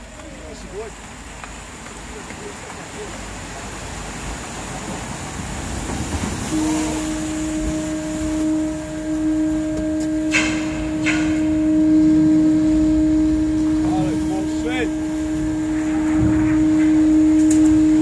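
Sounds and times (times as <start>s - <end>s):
rushing noise: 3.1s - 18.0s
ship's horn low note: 5.9s - 18.0s.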